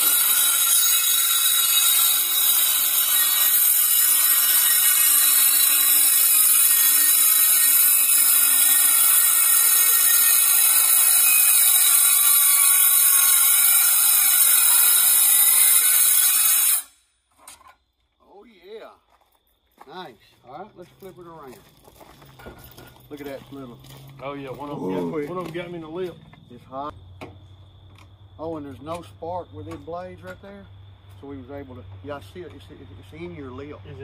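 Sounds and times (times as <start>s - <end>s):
circular saw cutting sheet metal: 0.0s - 17.0s.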